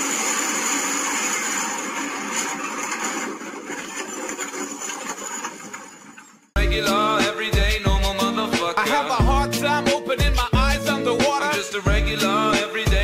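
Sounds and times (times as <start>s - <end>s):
music: 6.6s - 13.0s.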